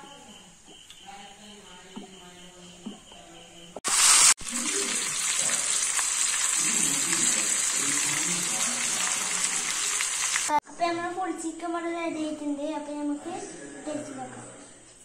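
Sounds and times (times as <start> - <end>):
chicken sizzling in hot oil: 3.8 - 10.6.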